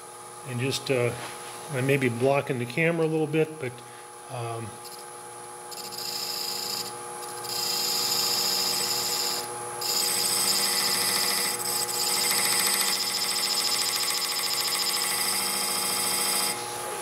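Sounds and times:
lathe humming: 0:05.7 - 0:17.0.

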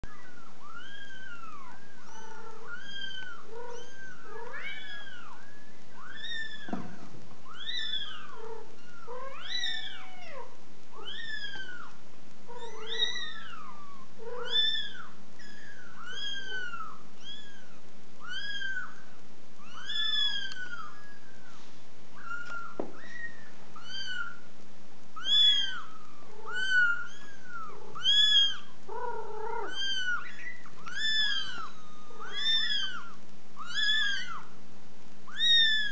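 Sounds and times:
kittens mewing: 0:00.1 - 0:11.9, 0:12.5 - 0:19.0, 0:25.2 - 0:34.5, 0:35.3 - 0:35.9.

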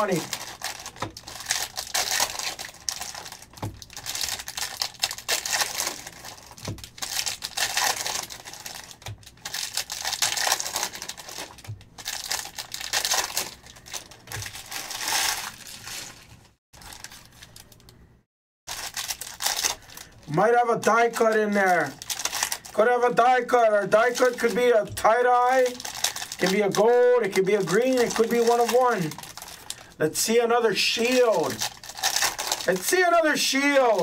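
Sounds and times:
card wrappers crinkling and tearing: 0:00.0 - 0:18.0, 0:18.7 - 0:30.0, 0:30.8 - 0:34.0.

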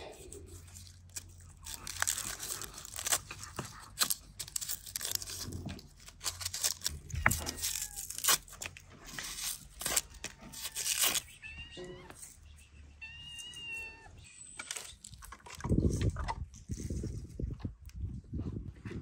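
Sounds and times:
onion skins tearing and crackling: 0:00.0 - 0:11.4, 0:14.4 - 0:17.4.

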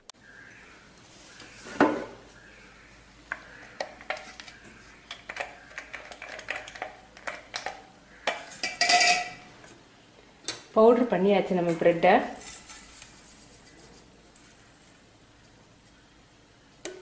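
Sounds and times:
steel kitchenware clinking: 0:08.3 - 0:09.4.

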